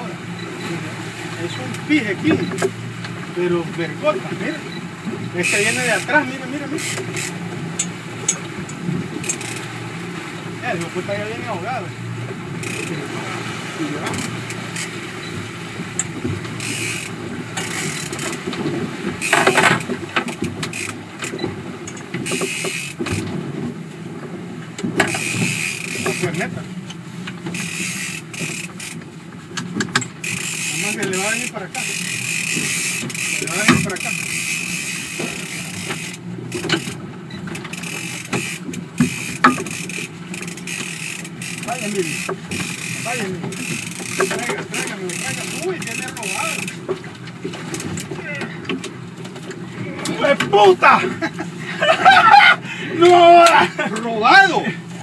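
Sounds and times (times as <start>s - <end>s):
boat engine hum: 0.0s - 55.0s
outboard motor running: 0.0s - 55.0s
water splashing past hull: 0.0s - 55.0s
fishing reel ticking: 5.4s - 9.7s, 12.6s - 13.0s, 14.1s - 15.4s, 16.0s - 18.4s, 19.2s - 23.2s, 25.0s - 26.4s, 27.5s - 29.0s, 29.9s - 37.0s, 37.6s - 46.8s.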